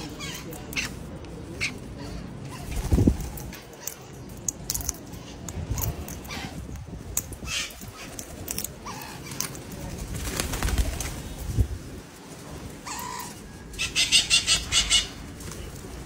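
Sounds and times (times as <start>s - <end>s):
bird wings flapping: 2.6s - 3.6s, 9.3s - 13.2s, 15.2s - 16.0s
harsh parakeet calls: 7.4s - 8.2s, 8.8s - 9.6s, 12.8s - 15.2s.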